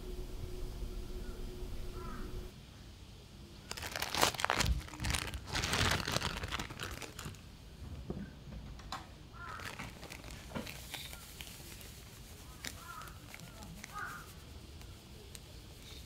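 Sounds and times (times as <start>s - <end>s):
plastic bag crinkling: 3.7s - 7.5s, 9.4s - 16.0s.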